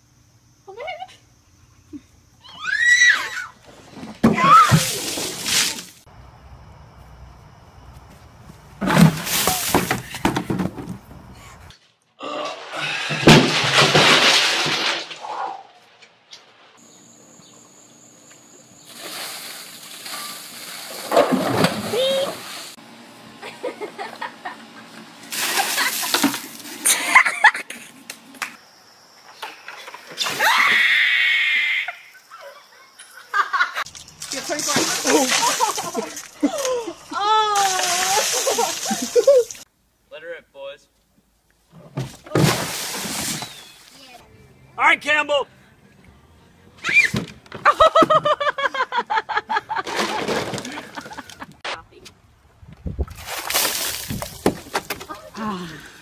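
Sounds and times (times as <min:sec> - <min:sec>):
people shrieking: 0:02.4 - 0:03.6, 0:30.2 - 0:32.1
ice water splashing: 0:04.5 - 0:06.1, 0:18.9 - 0:22.8, 0:25.3 - 0:26.8, 0:34.1 - 0:36.8, 0:37.5 - 0:39.6, 0:42.3 - 0:43.9, 0:53.1 - 0:54.7
people laughing: 0:23.4 - 0:24.8, 0:26.8 - 0:28.0, 0:32.3 - 0:33.9, 0:35.1 - 0:36.9, 0:38.0 - 0:39.6, 0:47.6 - 0:51.6.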